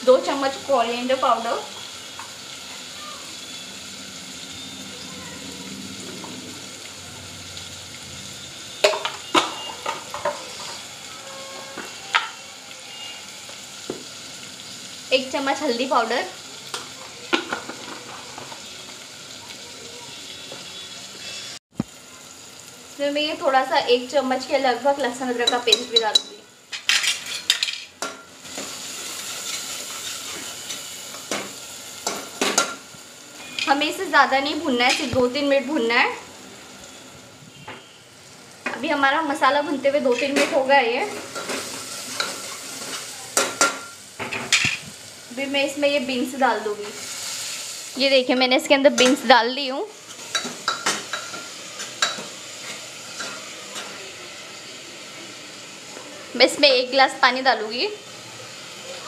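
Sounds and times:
vegetables sizzling in oil: 0.0s - 59.0s
metal spoon knocking and scraping pot: 25.4s - 28.3s.

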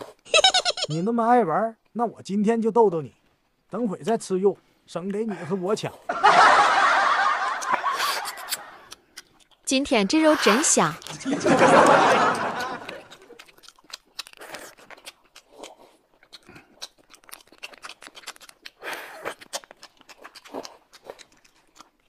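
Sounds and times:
chewing: 7.5s - 22.0s
slurping noodles: 7.6s - 9.1s, 10.1s - 11.7s, 18.6s - 19.7s.

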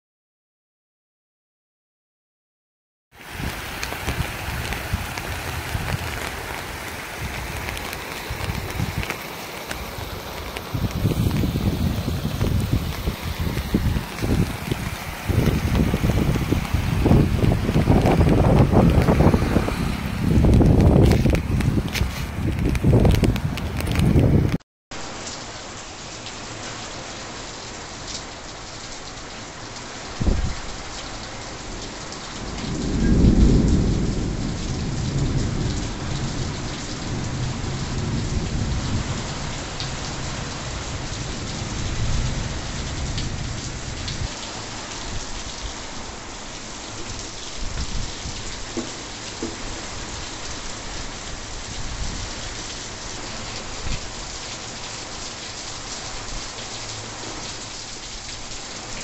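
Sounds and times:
heavy rain falling: 3.1s - 59.0s
rolling thunder rumble: 10.0s - 24.6s, 32.4s - 44.4s.

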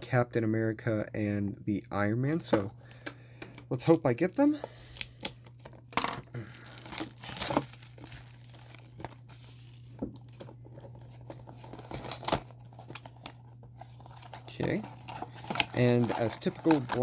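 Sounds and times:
thin card crinkling and tearing: 4.3s - 9.9s, 11.3s - 17.0s.

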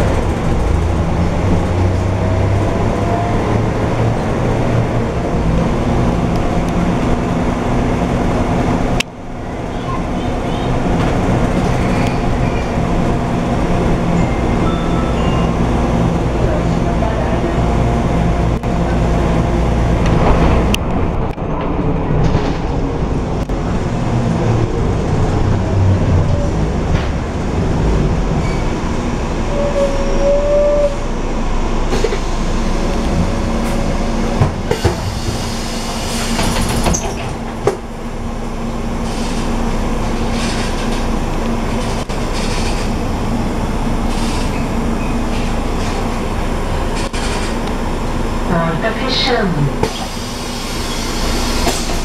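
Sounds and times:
bus body rattling and creaking: 0.0s - 52.0s
bus diesel engine droning: 0.0s - 52.0s
short squeal: 29.5s - 31.0s.

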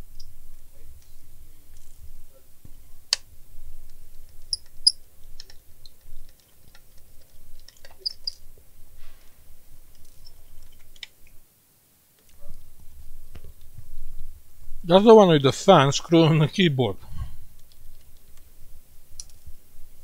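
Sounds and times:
plastic parts and screws clicking: 3.1s - 8.4s
low hum: 12.3s - 20.0s.

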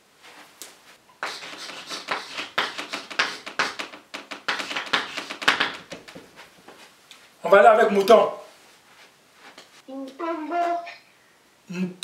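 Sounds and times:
chalk scratching on blackboard: 1.2s - 5.8s.

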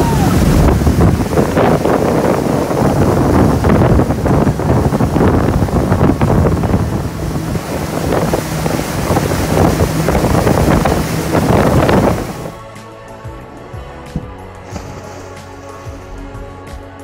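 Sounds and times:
wind buffeting microphone: 0.0s - 12.6s
boat engine hum: 0.0s - 17.0s
churning wake water: 0.0s - 17.0s.

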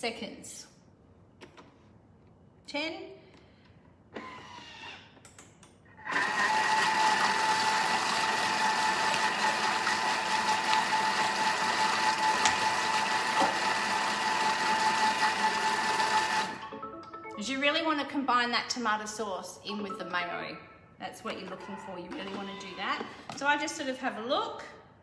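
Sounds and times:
food processor motor whine: 6.0s - 16.6s.

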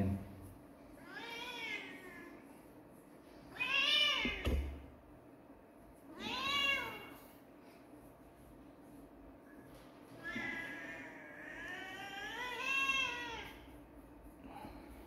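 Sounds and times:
cat meowing: 1.0s - 2.3s, 3.5s - 4.5s, 6.2s - 7.2s, 10.2s - 13.6s.

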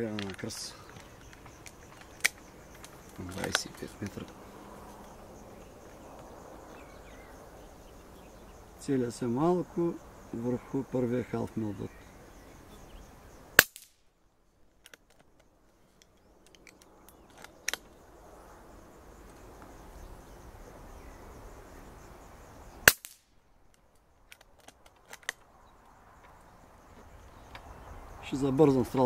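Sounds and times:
quiet clicks: 0.0s - 4.4s, 14.8s - 18.0s, 22.9s - 27.7s
air rifle shot crack: 13.6s - 14.0s, 22.8s - 23.3s.

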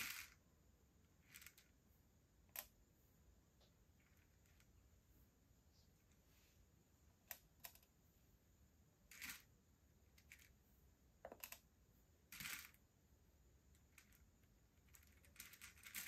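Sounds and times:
beads rattling: 0.0s - 0.4s, 1.2s - 1.8s, 9.0s - 10.6s, 12.3s - 12.8s, 13.7s - 16.0s
plastic beads clicking: 0.0s - 0.4s, 1.2s - 1.8s, 9.1s - 9.5s, 10.1s - 10.6s, 11.2s - 11.7s, 12.3s - 12.8s, 13.7s - 16.0s.

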